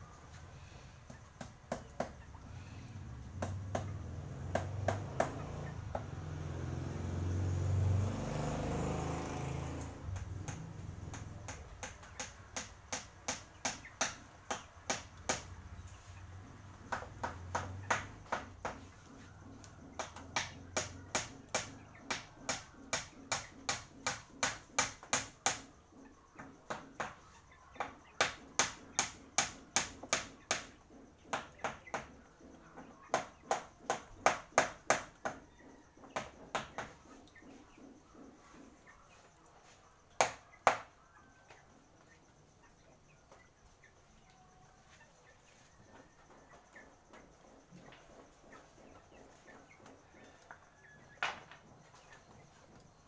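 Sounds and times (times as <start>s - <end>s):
hammer tapping nails: 1.4s - 2.2s, 3.4s - 6.1s, 10.1s - 15.5s, 20.0s - 25.7s, 27.8s - 30.7s.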